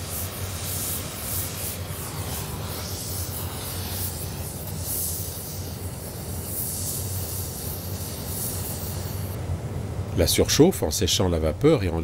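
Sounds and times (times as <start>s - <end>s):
welding torch hissing: 0.0s - 9.4s
constant low hum: 0.0s - 12.0s.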